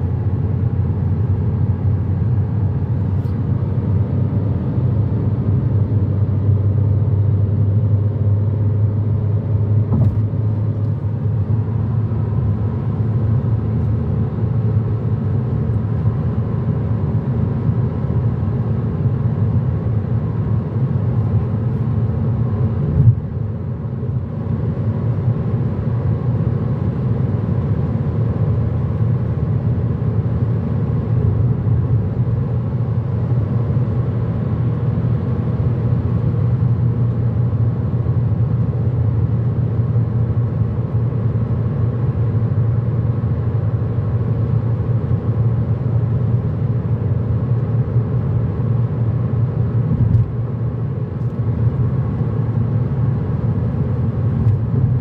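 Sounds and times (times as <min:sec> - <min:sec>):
car engine and tyre rumble: 0:00.0 - 0:55.0
brief knock: 0:09.9 - 0:10.2.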